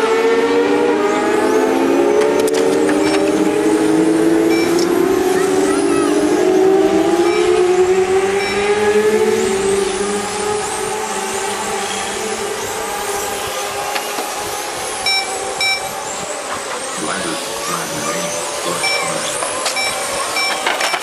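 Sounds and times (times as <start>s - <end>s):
rc race cars whining: 0.0s - 21.0s
short electronic beeps: 3.0s - 3.4s, 4.5s - 4.9s, 7.2s - 7.6s, 8.4s - 8.8s, 15.1s - 15.9s, 18.7s - 21.0s.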